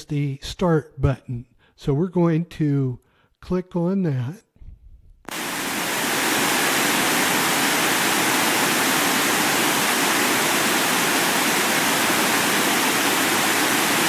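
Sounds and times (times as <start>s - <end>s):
radio static hiss: 5.3s - 14.0s.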